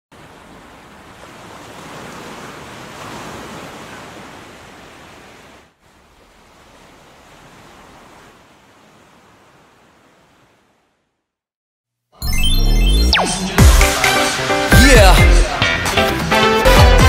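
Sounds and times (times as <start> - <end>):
ocean surf washing onto beach: 0.1 - 10.8.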